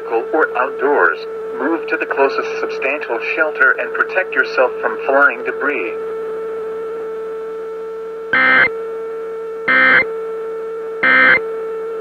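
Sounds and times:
low electronic drone: 0:08.2 - 0:08.8, 0:09.6 - 0:10.2, 0:11.0 - 0:11.6
screechy alert data bursts: 0:08.4 - 0:08.7, 0:09.7 - 0:10.1, 0:11.0 - 0:11.5.

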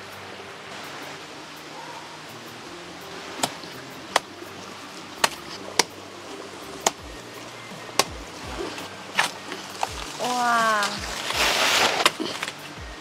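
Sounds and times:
blade chopping into plant trunk: 0:05.2 - 0:05.9, 0:08.0 - 0:10.2, 0:10.8 - 0:12.6.

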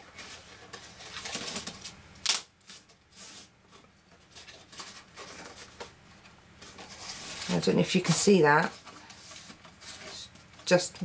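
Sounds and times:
cardstock rustling and scraping: 0:00.0 - 0:02.0, 0:02.6 - 0:11.0.

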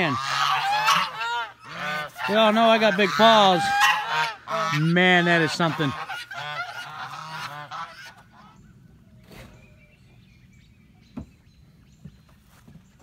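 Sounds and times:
geese honking: 0:00.0 - 0:09.1.

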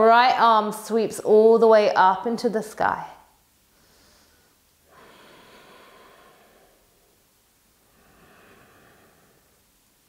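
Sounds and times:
woman breathing: 0:03.7 - 0:10.0.

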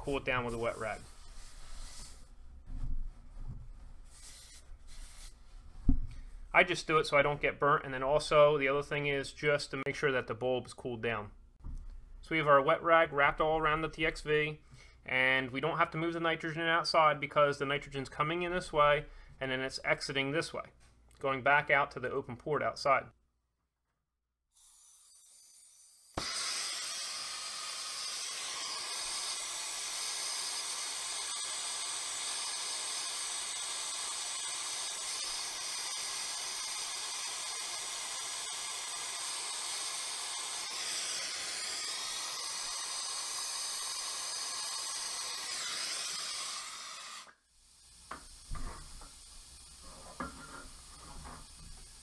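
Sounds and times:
torch flame hissing: 0:00.0 - 0:02.3, 0:04.1 - 0:05.4, 0:24.6 - 0:52.0.

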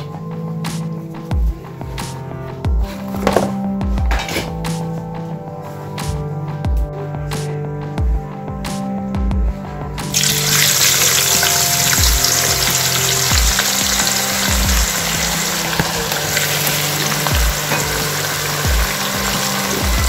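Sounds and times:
onions sizzling in hot oil: 0:10.2 - 0:20.0.

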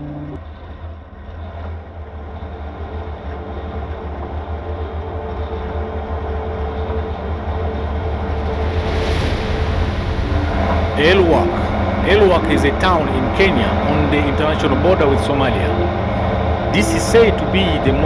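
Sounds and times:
engine and tyre rumble: 0:00.0 - 0:18.0.

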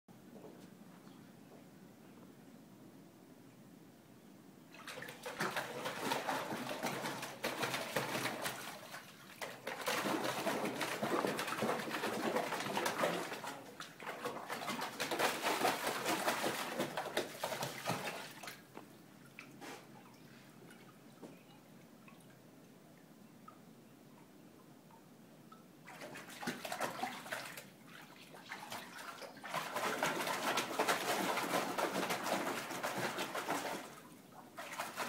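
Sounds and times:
dog splashing in water: 0:04.7 - 0:18.6, 0:25.8 - 0:35.0.

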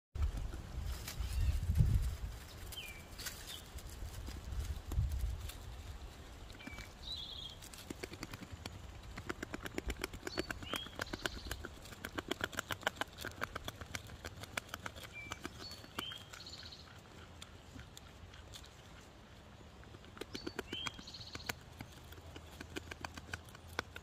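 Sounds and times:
beaver gnawing a twig: 0:00.2 - 0:24.0
bird chirps: 0:06.6 - 0:07.6, 0:10.1 - 0:11.7, 0:15.0 - 0:17.0, 0:19.9 - 0:22.2.

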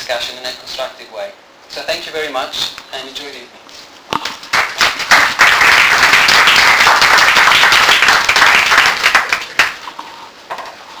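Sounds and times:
audience applauding: 0:04.5 - 0:09.8.

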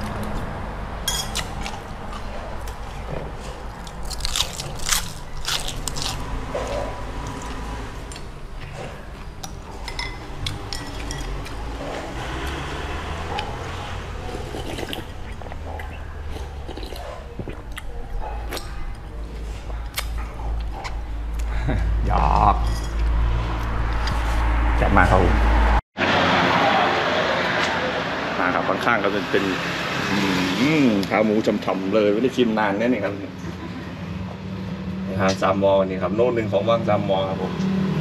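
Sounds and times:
chewing: 0:01.3 - 0:21.6.

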